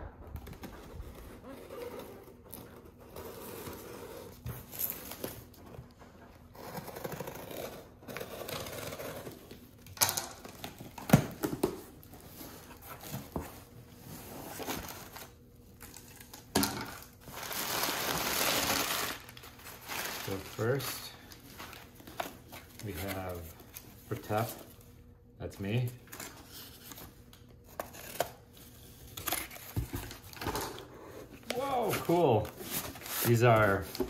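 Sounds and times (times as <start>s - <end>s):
tape scraping and tearing: 6.5s - 9.6s
cardboard and paper rustling: 10.4s - 24.8s, 25.7s - 34.0s.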